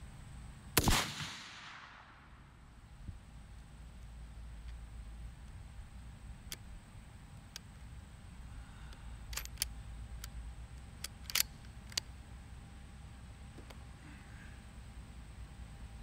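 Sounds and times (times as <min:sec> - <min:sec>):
low steady rumble: 0:00.0 - 0:16.0
rifle bolt clicks: 0:09.3 - 0:10.4, 0:11.0 - 0:12.1.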